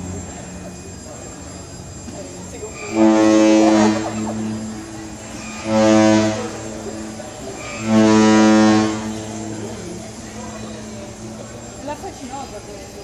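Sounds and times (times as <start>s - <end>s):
ship's horn blasts: 2.6s - 11.3s.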